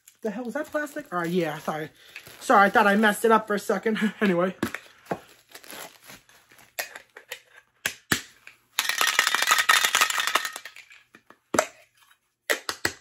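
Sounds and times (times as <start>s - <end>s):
plastic crinkling: 0.0s - 3.7s, 4.7s - 6.8s.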